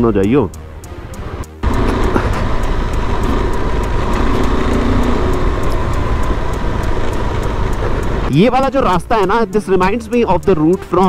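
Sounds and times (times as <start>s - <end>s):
wind and road noise: 0.0s - 11.0s
motorcycle engine cruising: 1.0s - 9.0s.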